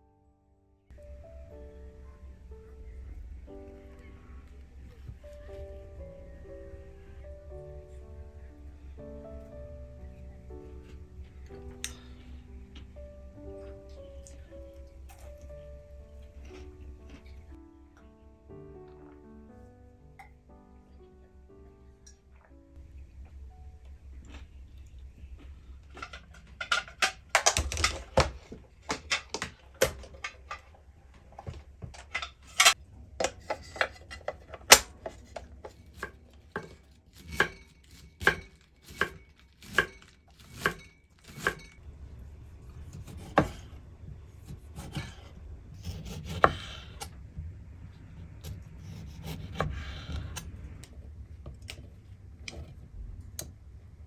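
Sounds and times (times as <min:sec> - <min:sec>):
knife chopping on wooden board: 0:42.9 - 0:43.7, 0:44.4 - 0:46.8, 0:48.4 - 0:50.1.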